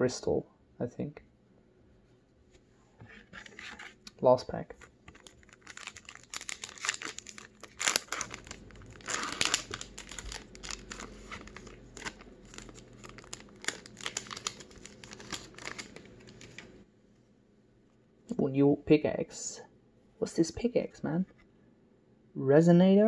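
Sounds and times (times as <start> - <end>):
foil wrapper crinkling and tearing: 4.8 - 16.7.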